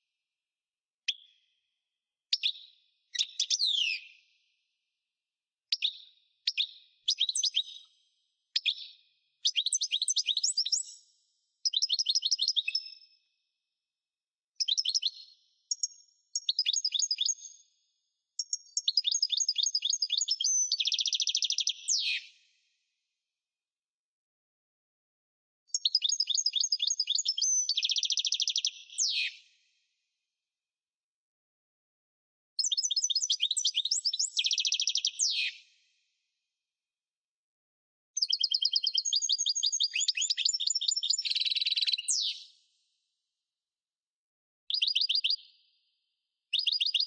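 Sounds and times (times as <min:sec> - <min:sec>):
goldfinch twittering song: 0:38.2 - 0:42.5, 0:44.7 - 0:45.5.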